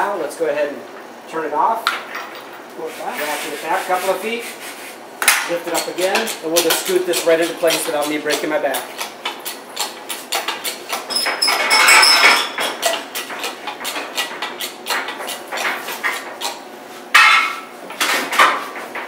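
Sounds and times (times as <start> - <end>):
steel plate scraping and clanking: 11.1 - 13.0.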